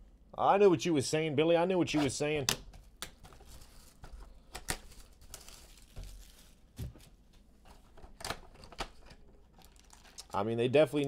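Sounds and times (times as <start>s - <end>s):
plastic shrink wrap tearing: 4.8s - 6.7s, 9.5s - 10.4s.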